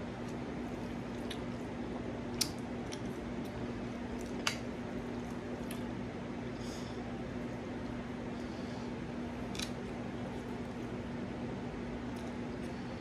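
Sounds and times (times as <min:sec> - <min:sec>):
steady low hum: 0:00.0 - 0:13.0
person chewing: 0:00.2 - 0:01.7, 0:02.3 - 0:05.9.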